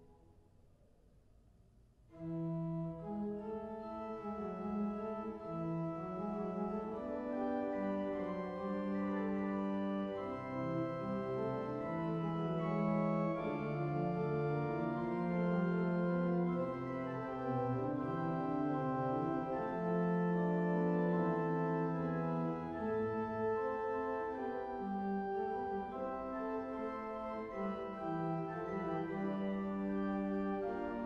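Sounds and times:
pipe organ playing held chords: 2.1s - 31.0s.

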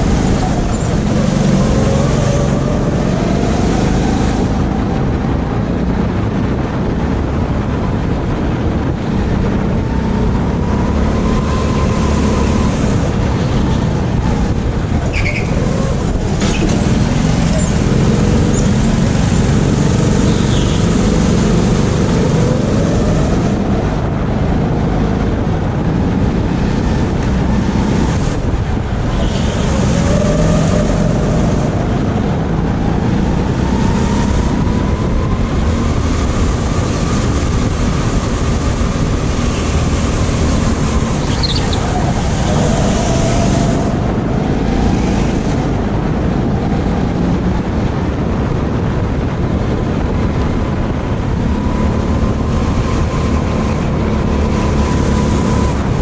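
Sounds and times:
go-kart motor rumble: 0.0s - 56.0s.

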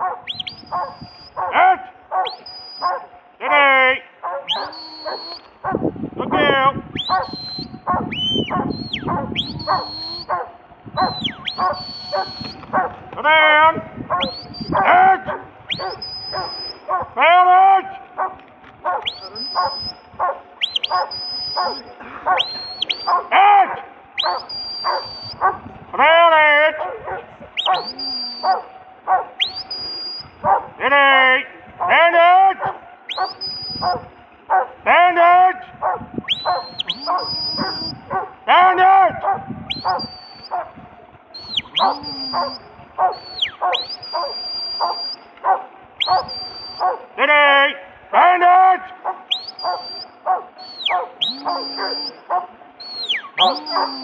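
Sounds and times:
dog barking: 0.0s - 3.6s, 4.2s - 5.9s, 7.0s - 13.0s, 14.1s - 17.2s, 18.2s - 25.7s, 26.8s - 29.5s, 30.4s - 30.7s, 32.6s - 34.8s, 35.8s - 38.4s, 39.1s - 40.8s, 41.6s - 47.1s, 49.0s - 54.0s
shepherd's whistle: 0.2s - 1.5s, 2.2s - 3.1s, 4.5s - 5.5s, 7.0s - 10.4s, 11.0s - 12.8s, 14.1s - 14.9s, 15.7s - 16.9s, 19.0s - 23.3s, 24.2s - 25.5s, 27.6s - 28.6s, 29.4s - 30.5s, 33.1s - 34.1s, 36.2s - 38.2s, 39.7s - 40.6s, 41.3s - 45.3s, 46.0s - 47.0s, 49.3s - 52.2s, 52.8s - 54.0s
person shouting: 53.4s - 54.0s.

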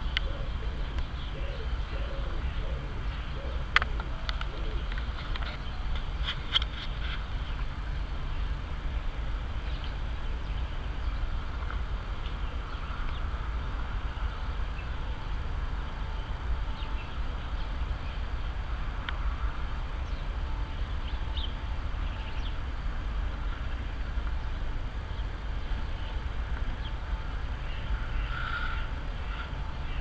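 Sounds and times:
faint bird chirps: 23.4s - 30.0s.

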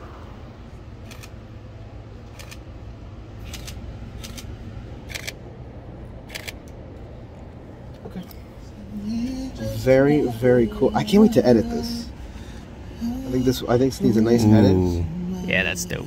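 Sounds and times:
low background rumble: 0.0s - 16.0s.

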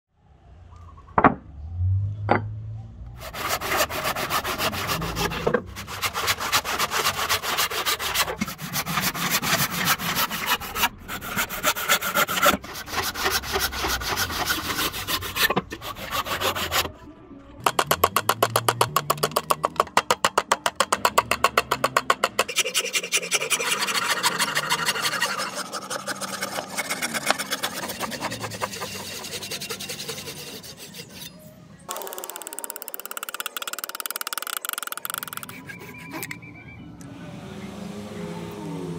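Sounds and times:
hand saw cutting wood: 3.2s - 17.0s, 20.3s - 32.5s, 33.2s - 36.3s.

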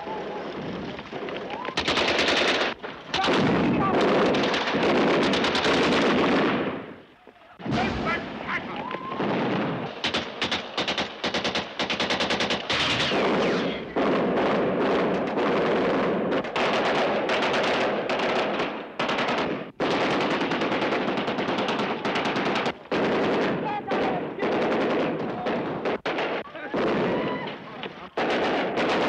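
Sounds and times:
automatic gunfire bursts: 1.8s - 6.8s, 9.2s - 27.1s, 28.2s - 29.0s.

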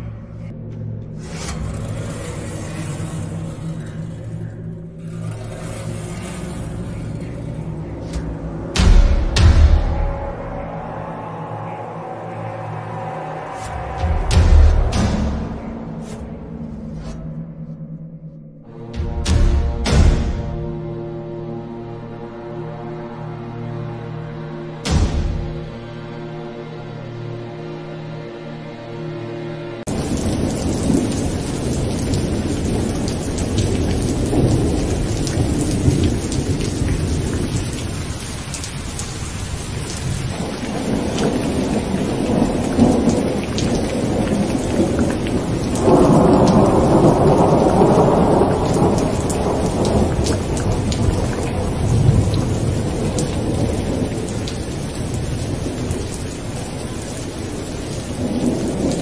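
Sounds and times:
music: 0.0s - 59.0s
rain hissing: 1.1s - 17.0s, 29.8s - 59.0s
rolling thunder: 29.9s - 59.0s.

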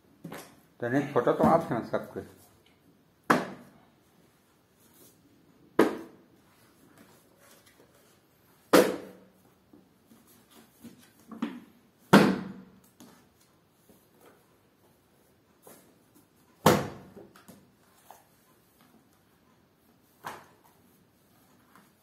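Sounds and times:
books slapping down on books: 5.8s - 6.2s, 8.6s - 9.2s, 16.6s - 17.7s, 20.1s - 20.8s.

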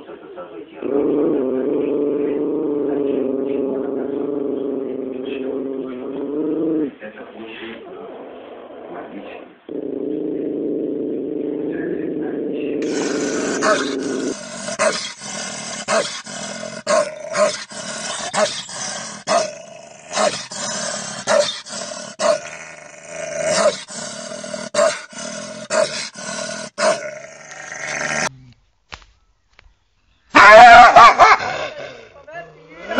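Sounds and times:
large dog barking: 12.8s - 27.2s, 30.3s - 31.6s
dog snarling: 12.8s - 28.3s.

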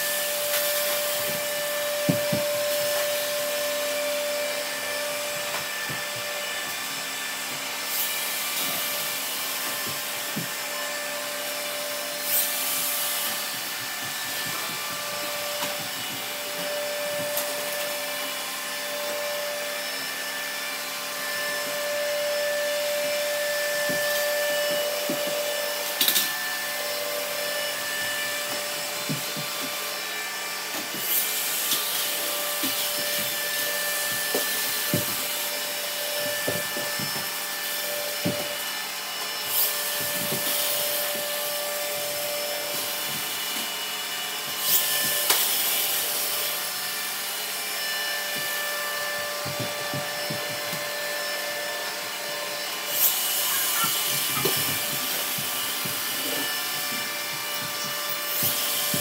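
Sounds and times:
robot vacuums whirring: 0.0s - 59.0s.

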